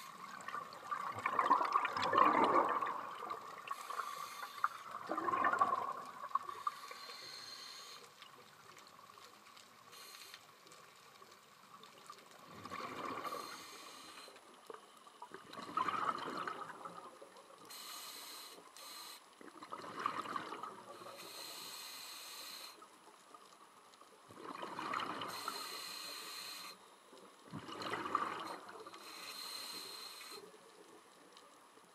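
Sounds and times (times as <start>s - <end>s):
bubbly exhaled air rush: 1.0s - 6.0s
hiss of inhaling: 3.7s - 5.0s, 6.5s - 8.2s, 9.9s - 10.6s, 13.2s - 14.4s, 17.7s - 19.3s, 21.0s - 22.9s, 25.2s - 26.8s, 28.9s - 30.5s.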